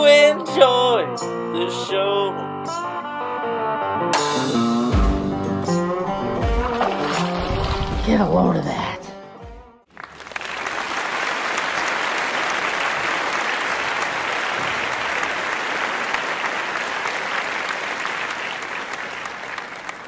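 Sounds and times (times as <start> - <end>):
crowd applauding: 9.9 - 20.0.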